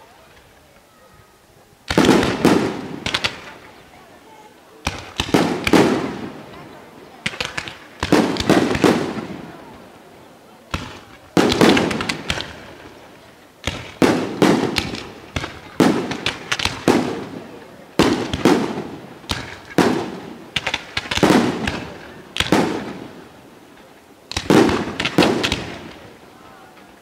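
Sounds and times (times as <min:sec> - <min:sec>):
fireworks launching and bursting: 0:01.8 - 0:03.9, 0:04.8 - 0:10.0, 0:10.6 - 0:26.2
sharp firework bangs: 0:01.9 - 0:03.6, 0:04.8 - 0:06.4, 0:07.2 - 0:09.4, 0:10.7 - 0:12.9, 0:13.6 - 0:17.4, 0:18.0 - 0:23.2, 0:24.3 - 0:26.0.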